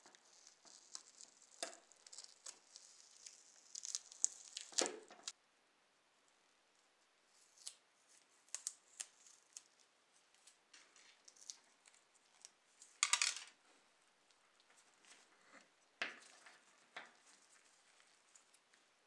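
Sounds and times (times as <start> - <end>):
plastic parts clicking and scraping: 12.8 - 13.6.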